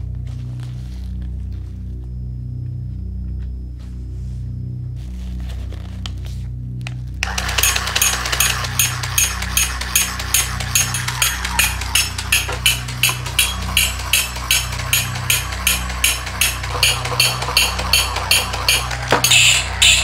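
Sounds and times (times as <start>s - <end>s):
low hum: 0.0s - 20.0s
toy monkey clashing cymbals: 7.2s - 20.0s.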